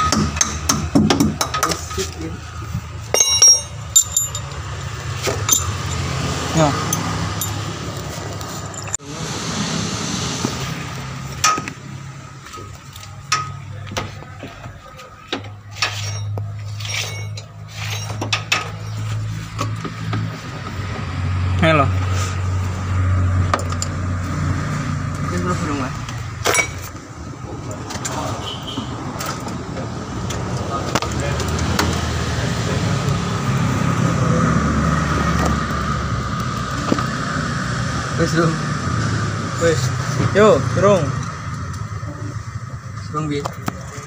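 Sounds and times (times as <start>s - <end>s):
hand tools clinking on metal: 3.1s - 9.0s, 15.7s - 19.1s.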